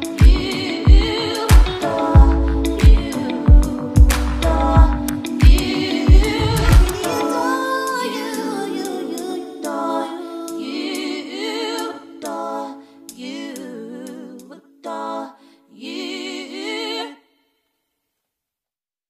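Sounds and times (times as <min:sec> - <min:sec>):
woman singing with vibrato: 0:00.0 - 0:03.8, 0:04.5 - 0:12.6
breaths: 0:12.8 - 0:13.2, 0:15.4 - 0:15.7.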